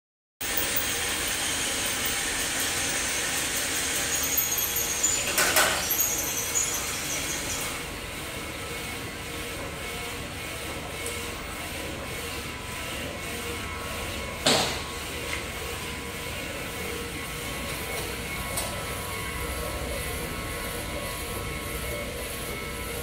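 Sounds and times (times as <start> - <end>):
high-pitched whines: 0.4 - 7.9
machinery whirring and humming: 0.4 - 23.0.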